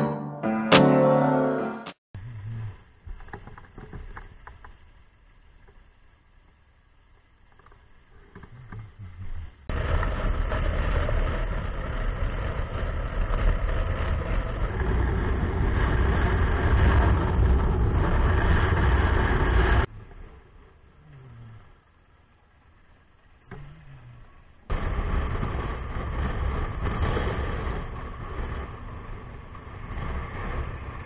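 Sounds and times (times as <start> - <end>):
motorcycle engine at speed: 8.3 - 22.6, 23.2 - 31.0.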